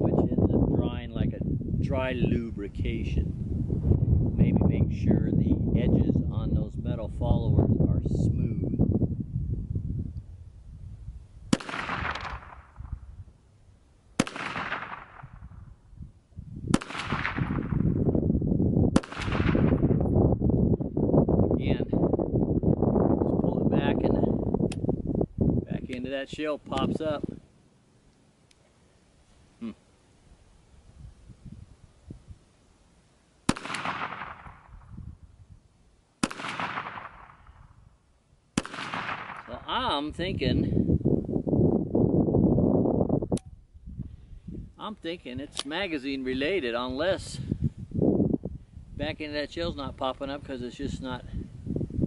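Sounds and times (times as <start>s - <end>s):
pistol shots with echo: 11.5s - 13.0s, 14.2s - 15.5s, 16.7s - 17.9s, 19.0s - 19.8s, 33.5s - 34.8s, 36.2s - 37.6s, 38.6s - 39.6s.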